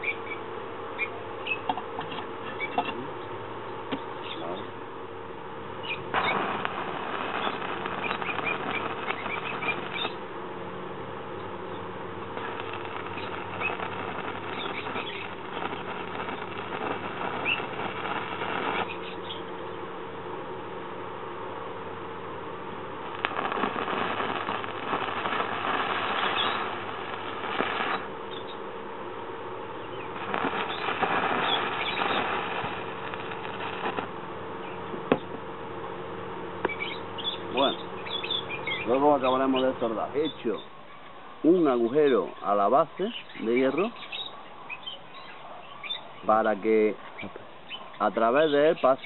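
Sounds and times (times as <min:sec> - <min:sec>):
steady hum: 0:00.0 - 0:45.1
welding arc crackling: 0:05.9 - 0:10.4, 0:11.4 - 0:19.6, 0:23.0 - 0:28.6, 0:29.8 - 0:35.2.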